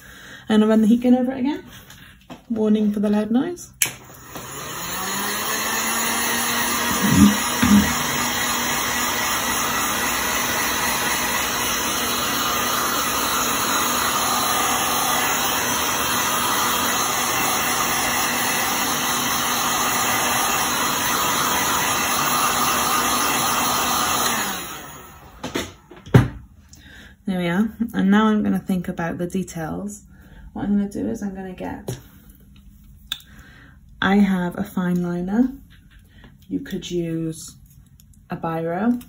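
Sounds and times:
heat gun blowing: 3.8 - 25.8.

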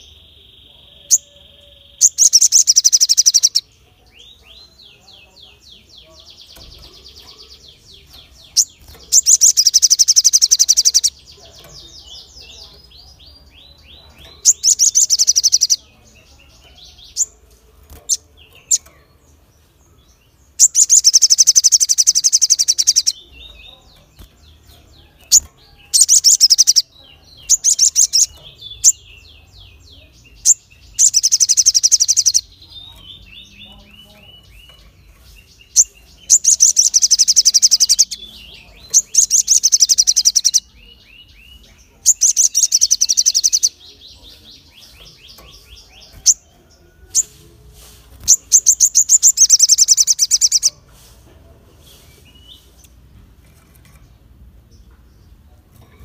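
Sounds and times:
high bird twittering: 0.0 - 19.0, 20.6 - 47.4, 48.1 - 50.8
bird chirps: 0.0 - 51.1
bird trilling: 8.6 - 11.2.

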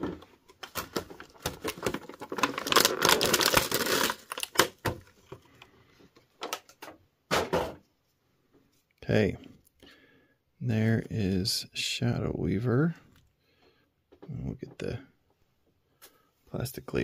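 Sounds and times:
plastic packaging crackling: 0.5 - 5.4.

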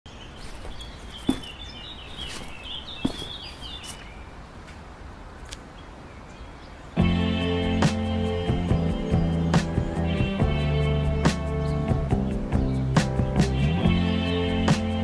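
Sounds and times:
outdoor background hum: 0.1 - 15.0
small birds chirping: 0.1 - 15.0.

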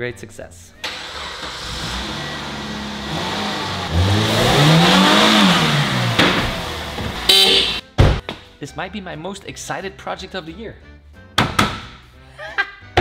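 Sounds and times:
car engine revving: 0.9 - 7.8.

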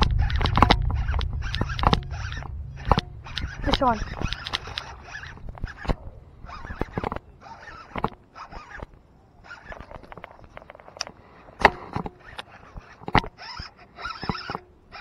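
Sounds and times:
sharp knocks: 0.0 - 6.0.

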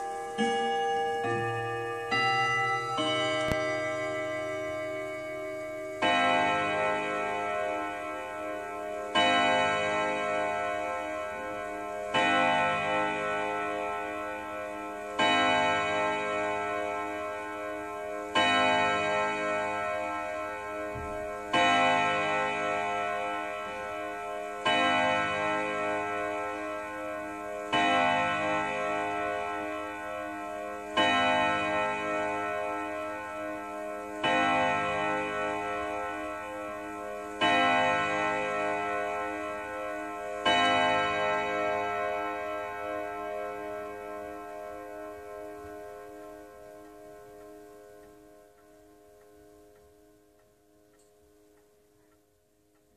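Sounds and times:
clock gong striking: 0.0 - 27.0.

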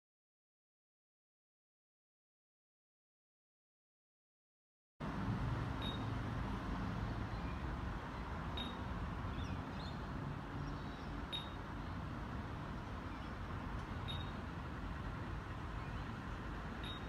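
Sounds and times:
distant road traffic rumble: 5.0 - 17.0
faint high chirp: 5.8 - 6.2, 8.5 - 10.0, 10.7 - 11.6, 14.0 - 14.4, 16.8 - 17.0.

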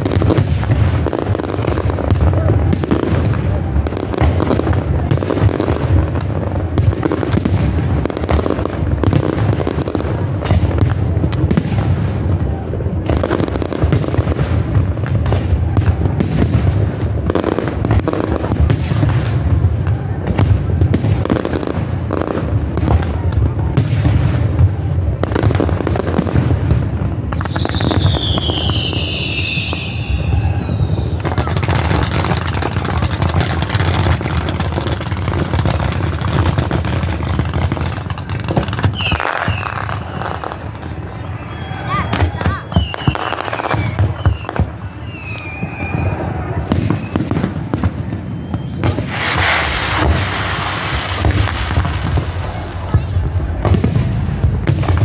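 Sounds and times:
firework booms and crackles: 0.0 - 55.0
falling firework whistles: 23.7 - 55.0.

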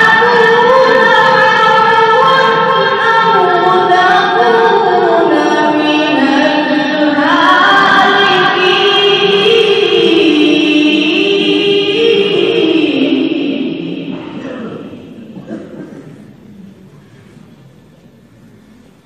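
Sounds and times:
melodic quran recitation: 0.0 - 16.1.

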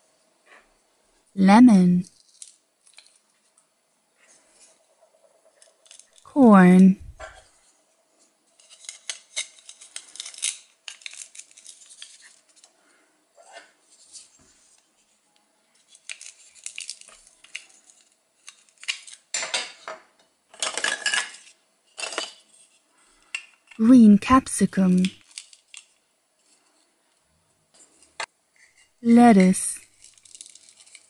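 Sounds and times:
plastic toy pieces clattering: 2.1 - 3.3, 4.6 - 6.2, 8.6 - 12.7, 15.8 - 19.9, 20.5 - 23.8, 24.9 - 26.6, 29.9 - 31.0.

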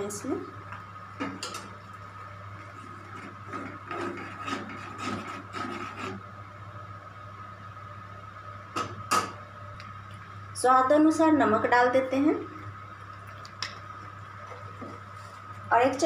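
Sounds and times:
steady hum: 0.0 - 16.0
ladle scraping pan: 2.6 - 6.2.

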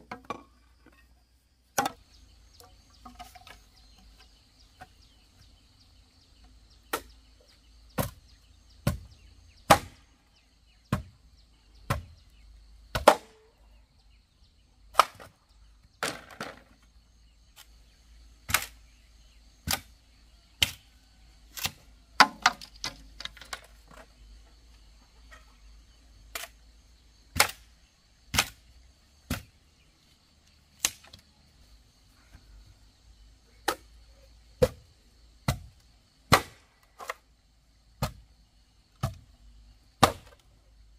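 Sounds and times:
hand tool striking wood: 8.8 - 10.0, 21.6 - 23.6, 35.5 - 35.7.

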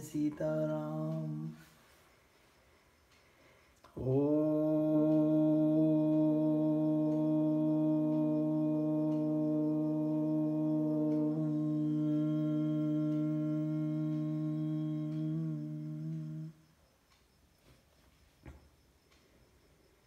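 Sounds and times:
person chanting om: 0.0 - 1.8, 3.9 - 16.7.

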